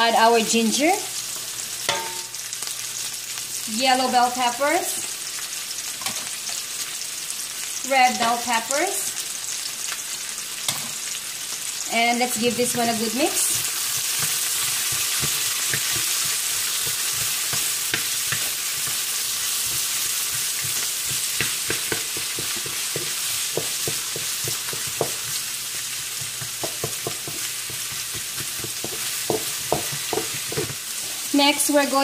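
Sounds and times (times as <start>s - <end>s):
vegetables sizzling in oil: 0.0s - 32.0s.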